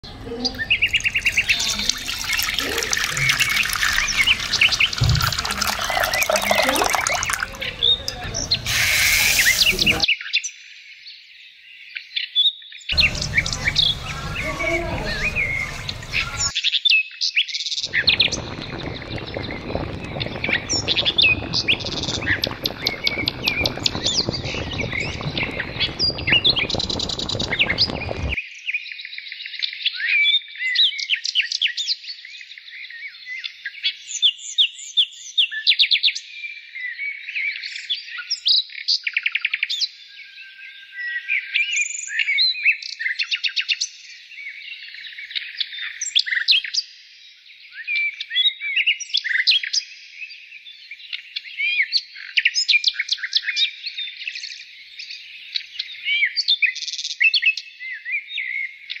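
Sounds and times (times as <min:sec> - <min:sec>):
small birds chirping: 0:00.1 - 0:10.0, 0:12.9 - 0:16.5, 0:17.8 - 0:28.4
steady rushing noise: 0:17.9 - 0:28.4.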